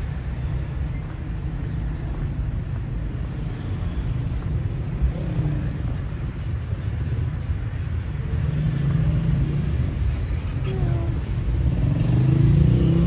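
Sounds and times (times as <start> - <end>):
low rumble of street traffic: 0.0 - 13.0
thin high chirping tone: 5.8 - 7.7.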